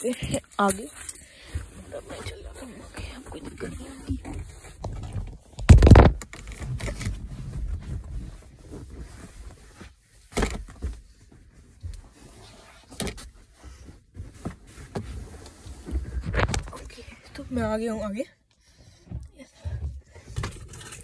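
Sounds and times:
phone handling noise: 5.6s - 6.3s.

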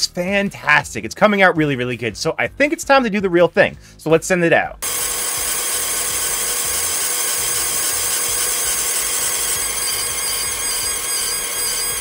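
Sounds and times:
high whine: 4.8s - 12.0s
laser engraver hissing buzz: 4.8s - 12.0s.

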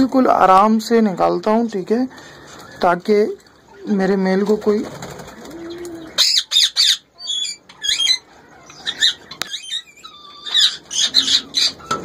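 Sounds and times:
parakeets squawking: 5.2s - 12.0s.

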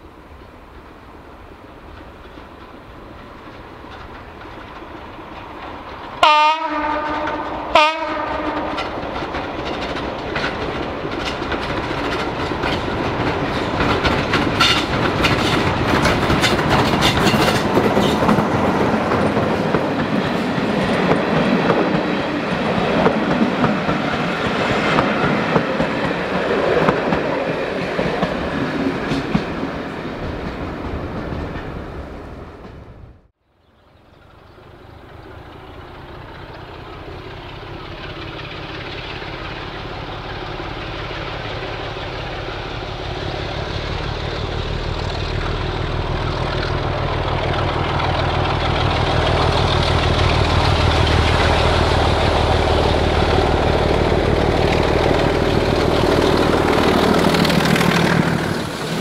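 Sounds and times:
diesel train engine under load: 0.0s - 33.2s, 34.0s - 59.0s
wheels clicking over rail joints: 1.7s - 6.2s, 7.0s - 32.8s, 34.1s - 59.0s
train horn blasts: 6.2s - 9.0s.

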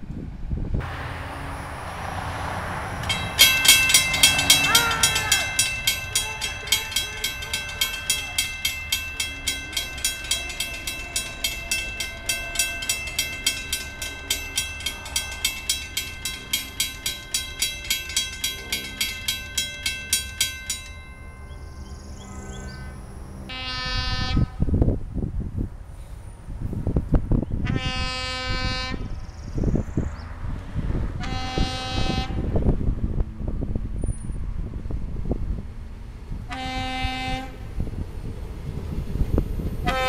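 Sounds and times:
low train rumble: 0.0s - 40.0s
railroad crossing bell ringing: 1.4s - 24.0s
train horn: 2.8s - 8.4s, 22.2s - 24.7s, 27.6s - 29.1s, 31.2s - 32.6s, 36.5s - 37.7s.

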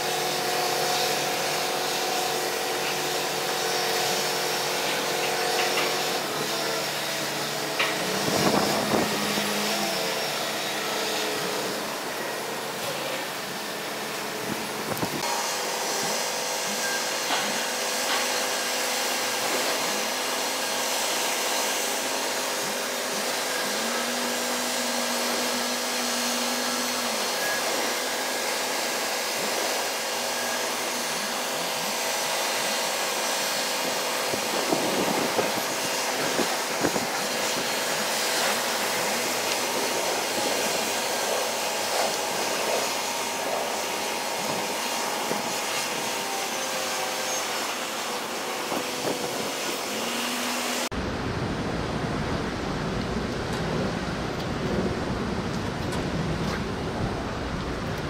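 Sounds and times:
machinery hum: 0.0s - 58.0s
wind and rain hiss: 50.9s - 58.0s.

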